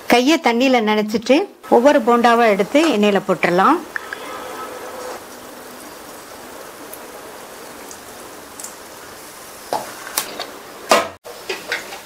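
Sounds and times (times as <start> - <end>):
oil sizzling hiss: 3.4 - 12.0
batter crackling in oil: 5.0 - 12.0.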